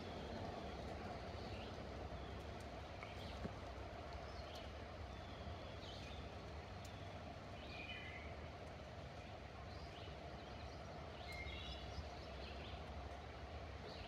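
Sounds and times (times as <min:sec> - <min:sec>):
background hiss with low rumble: 0:00.0 - 0:14.0.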